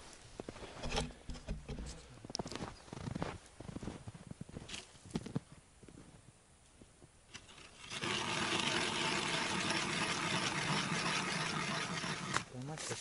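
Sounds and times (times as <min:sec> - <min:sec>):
ice auger grinding: 0:07.3 - 0:12.6.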